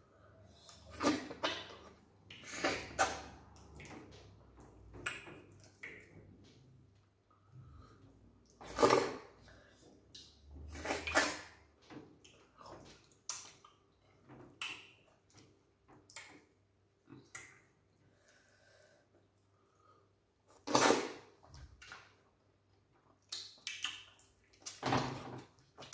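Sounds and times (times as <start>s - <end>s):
wet slurps: 0.5s - 4.0s, 8.4s - 9.6s, 10.2s - 11.6s, 20.5s - 22.0s
lip smacks and chewing: 5.0s - 6.2s, 12.2s - 14.0s, 23.0s - 24.8s.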